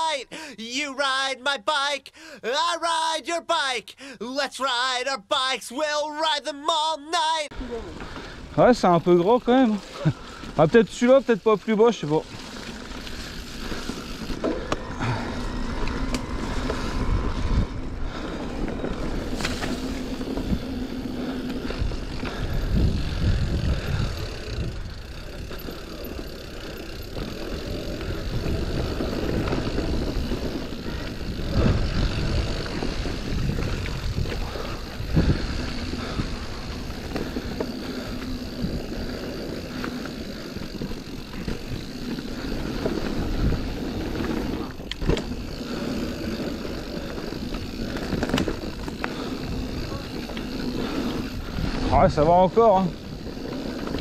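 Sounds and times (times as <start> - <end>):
tyres crunching on dirt trail: 7.5 - 54.0
bike knocking and rattling: 7.8 - 54.0
wind rumble on microphone: 14.8 - 20.9, 21.6 - 25.0, 27.6 - 39.2.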